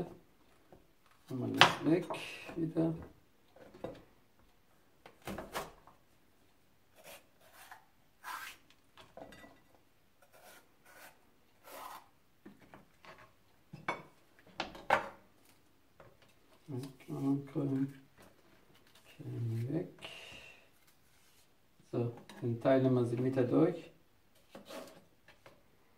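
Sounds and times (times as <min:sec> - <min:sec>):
knife cutting a pepper: 0:07.0 - 0:08.6, 0:10.2 - 0:12.1.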